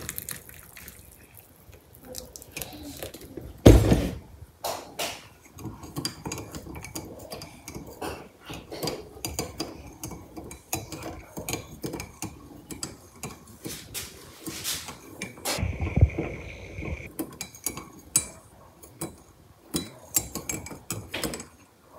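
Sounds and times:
dishes and cutlery clinking: 4.7 - 15.6, 17.0 - 21.7.

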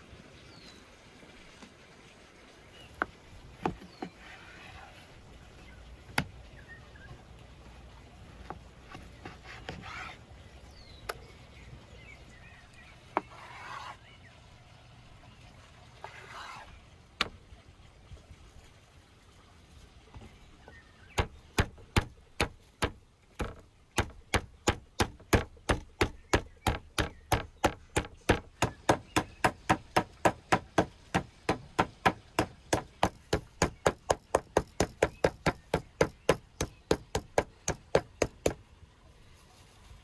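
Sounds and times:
meat mallet pounding thuds: 21.2 - 38.6.

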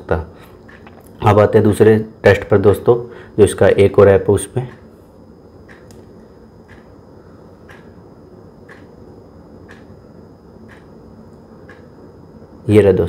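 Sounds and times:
low steady hum: 0.0 - 13.0
faint ticking: 4.6 - 5.0, 5.6 - 7.0, 7.6 - 10.0, 10.6 - 12.0.

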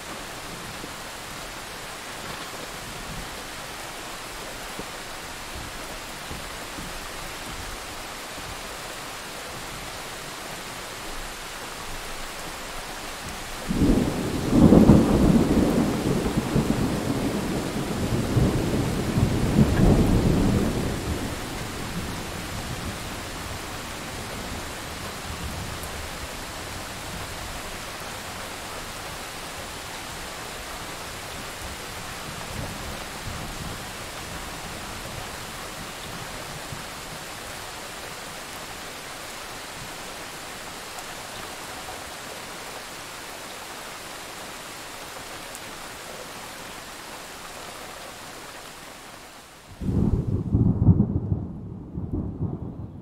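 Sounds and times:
steady rain: 0.0 - 53.0
thunder rumbling: 13.6 - 26.0, 49.8 - 53.0.

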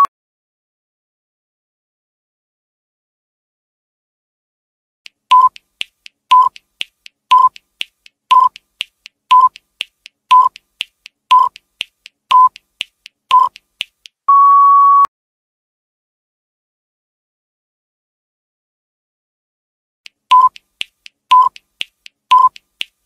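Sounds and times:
faint ticks: 5.1 - 14.2, 20.1 - 23.0
short timer beeps: 5.3 - 5.7, 6.3 - 6.6, 7.3 - 7.6, 8.3 - 8.6, 9.3 - 9.6, 10.3 - 10.6, 11.3 - 11.6, 12.3 - 12.6, 13.3 - 13.6, 20.3 - 20.6, 21.3 - 21.6, 22.3 - 22.6
long higher beep: 14.3 - 15.1.

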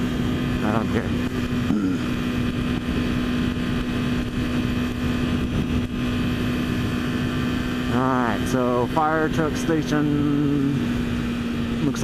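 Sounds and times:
wind rushing over microphone: 0.0 - 8.3
motorcycle engine droning: 0.0 - 12.0.

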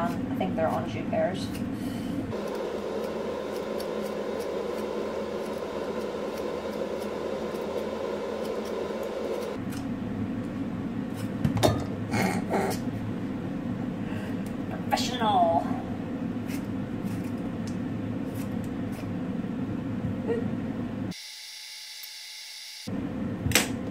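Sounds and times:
steady background hum: 0.0 - 21.1
vegetable peeler scraping fruit: 2.3 - 9.8, 18.3 - 19.2.

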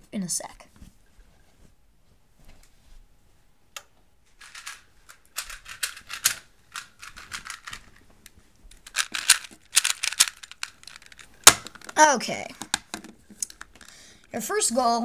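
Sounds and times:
puzzle cube layer turns clicking: 8.7 - 12.0.

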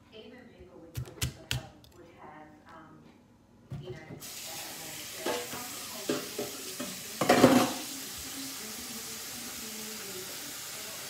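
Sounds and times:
cookware clattering: 5.2 - 7.8.

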